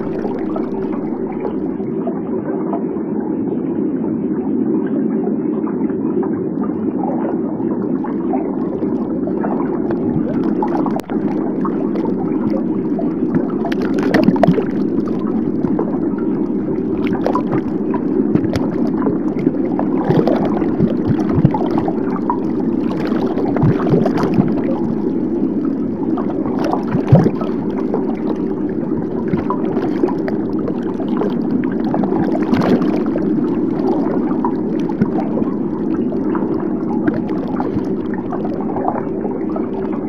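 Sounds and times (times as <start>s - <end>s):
muffled underwater rush: 0.0s - 40.0s
underwater clicks and gurgles: 0.0s - 40.0s.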